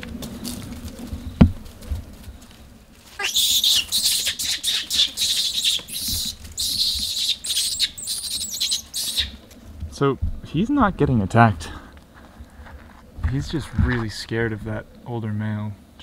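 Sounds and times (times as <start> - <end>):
monkey screaming: 3.2 - 9.4.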